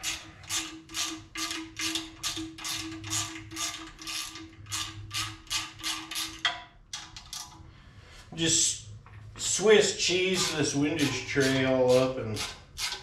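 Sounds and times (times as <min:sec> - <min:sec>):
oscillating multi-tool cutting metal: 0:10.1 - 0:13.0.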